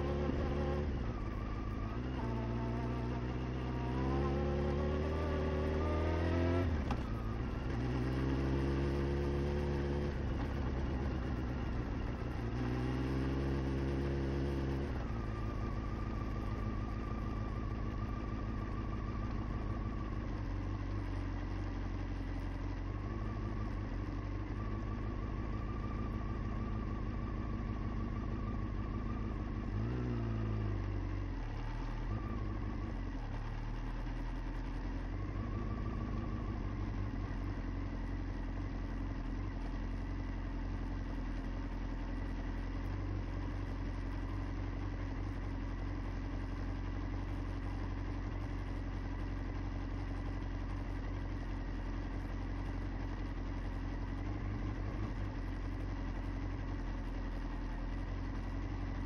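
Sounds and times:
small vehicle engine revving: 0:00.0 - 0:20.2, 0:24.6 - 0:39.8.

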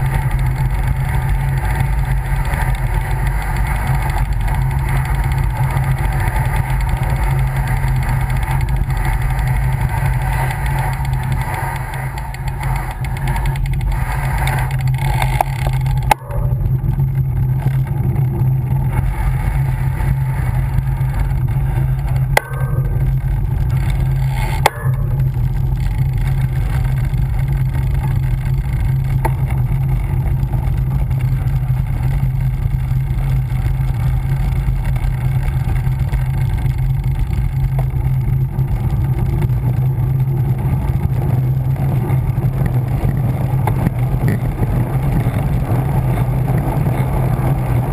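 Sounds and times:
wind and road rumble: 0:00.0 - 0:47.9
sharp knocks: 0:22.3 - 0:23.2.

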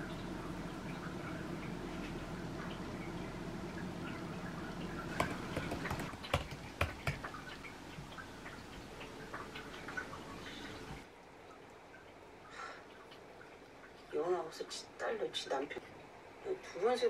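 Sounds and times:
low steady hum: 0:00.0 - 0:17.0
light taps: 0:05.1 - 0:07.7.

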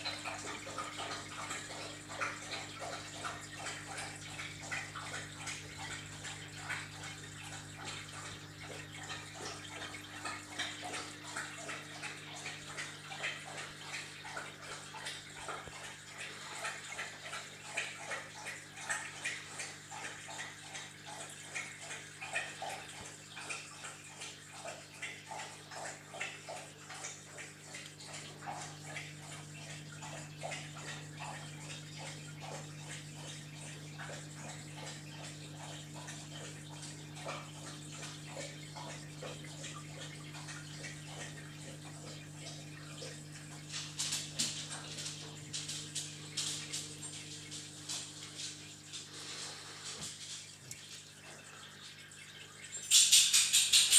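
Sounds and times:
aquarium water bubbling: 0:00.0 - 0:53.9
low equipment hum: 0:26.5 - 0:52.7.

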